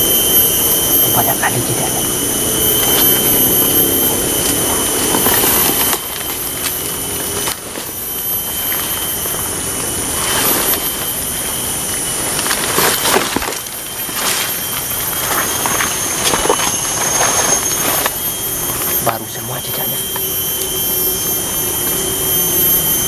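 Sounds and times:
high-pitched whine: 0.0s - 23.0s
footsteps rustling leaf litter: 4.2s - 18.1s.

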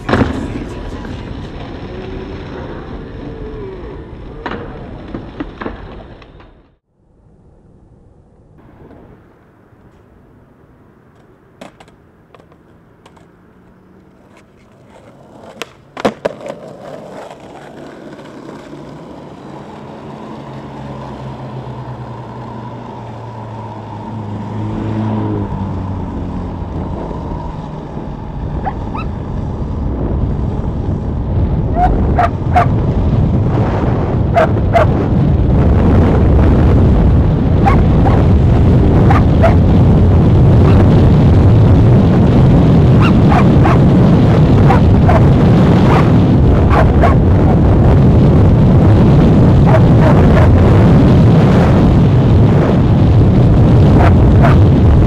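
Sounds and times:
skateboard wheels rolling on asphalt: 0.0s - 55.0s
sharp skateboard clacks: 11.2s - 19.9s.

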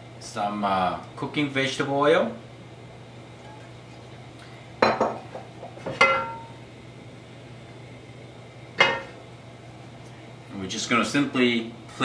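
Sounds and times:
metal frying pan clinking: 6.0s - 6.5s, 8.8s - 9.2s.

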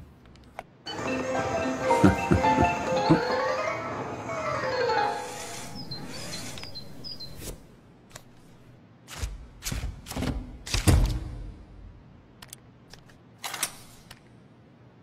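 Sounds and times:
background music: 0.9s - 6.1s.

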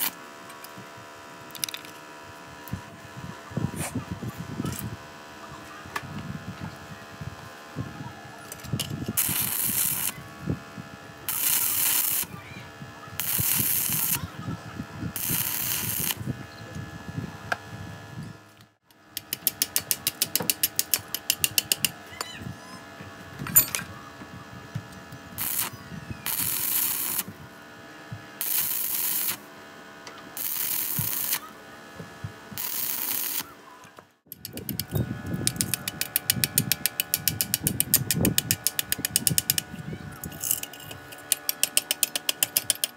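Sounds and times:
welding arc crackling: 8.8s - 10.3s, 11.2s - 12.4s, 13.2s - 14.3s, 15.1s - 16.3s, 25.3s - 27.4s, 28.4s - 29.5s, 30.4s - 31.6s, 32.5s - 33.5s, 34.4s - 42.9s
chipping hammer tapping: 40.9s - 42.9s.

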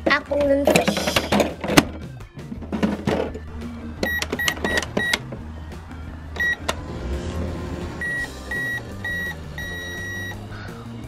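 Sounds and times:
toy microwave beeping: 4.0s - 5.2s, 6.4s - 6.7s, 8.0s - 10.4s.

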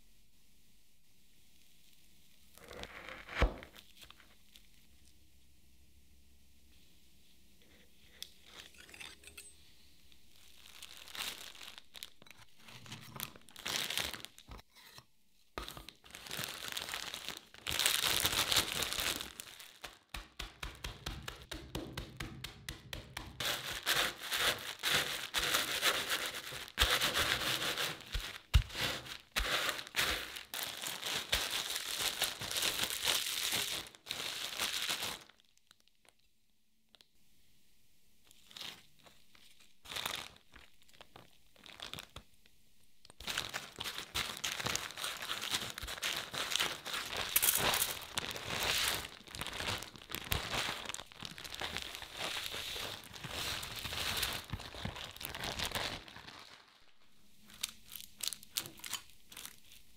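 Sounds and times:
plastic bag crinkling: 10.1s - 14.6s, 15.6s - 21.5s, 23.3s - 35.9s, 38.4s - 42.2s, 43.1s - 59.9s.

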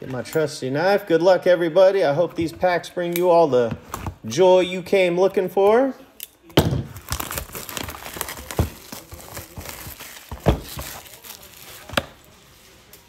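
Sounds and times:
plastic shrink wrap crinkling: 6.9s - 13.0s.

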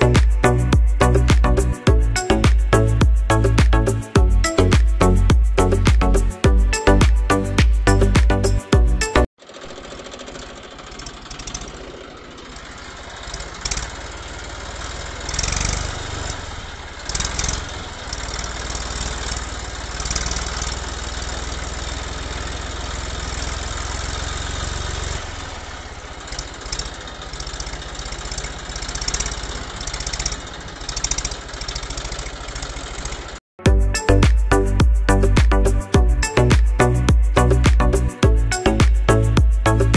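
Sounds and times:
toy tractor motor whirring: 9.4s - 33.4s.

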